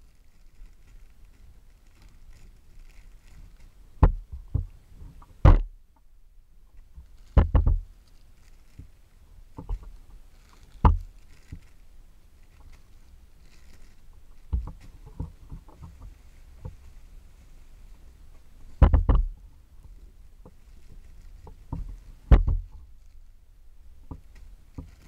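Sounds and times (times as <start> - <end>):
plastic bags crinkling: 0.0 - 3.9, 7.0 - 15.2, 20.5 - 23.3, 24.3 - 25.0
knocks and bumps: 6.9 - 7.8, 18.8 - 19.4, 21.4 - 22.9.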